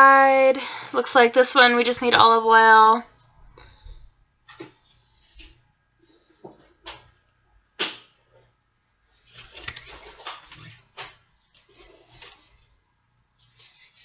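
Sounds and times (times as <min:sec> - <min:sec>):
stiff paper card flicks: 0:07.8 - 0:08.1
crinkly paper rustling: 0:09.2 - 0:12.8, 0:13.4 - 0:14.0.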